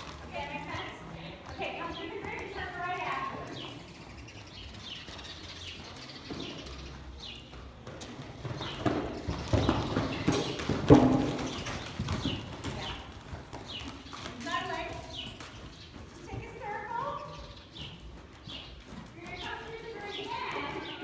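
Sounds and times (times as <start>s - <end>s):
horse hoofbeats on dirt: 0.0s - 21.0s
horse landing thud: 8.8s - 12.4s.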